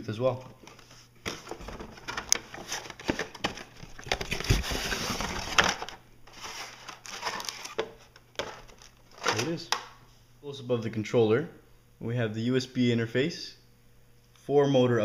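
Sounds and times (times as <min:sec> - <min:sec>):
cardboard rustling scrape: 0:00.8 - 0:09.5.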